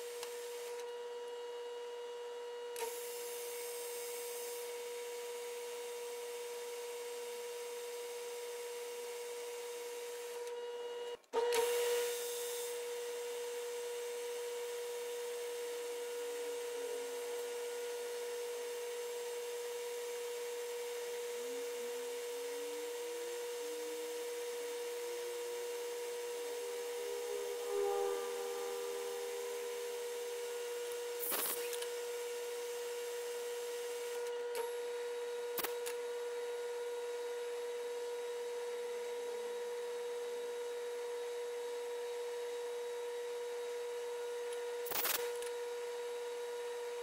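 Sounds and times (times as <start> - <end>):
metal lathe humming and whining: 21.6 - 34.1
drill squeaking in brass: 26.4 - 31.8.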